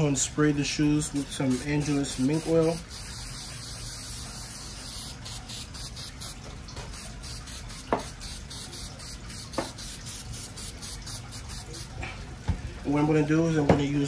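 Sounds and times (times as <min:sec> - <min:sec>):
aerosol can spraying: 0:01.2 - 0:11.9.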